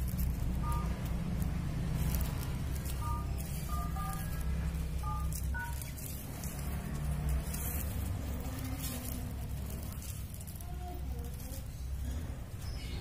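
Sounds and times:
short two-tone electronic beeps: 0:00.6 - 0:01.0, 0:05.0 - 0:05.9.

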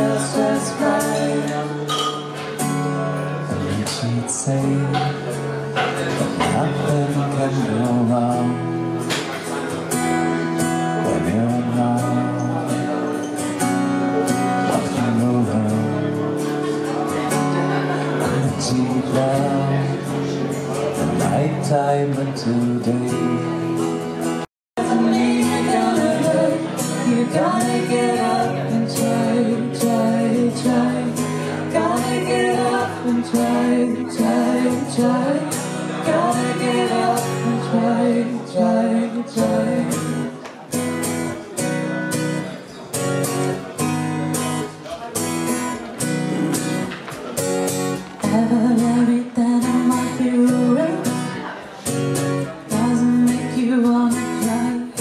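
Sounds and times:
woman and man singing: 0:00.0 - 0:01.9, 0:03.5 - 0:08.8, 0:11.0 - 0:12.8, 0:14.6 - 0:16.2, 0:18.2 - 0:20.2, 0:21.0 - 0:23.6, 0:24.8 - 0:40.4, 0:48.2 - 0:51.7, 0:52.6 - 0:55.0
strummed acoustic guitar: 0:00.0 - 0:55.0.

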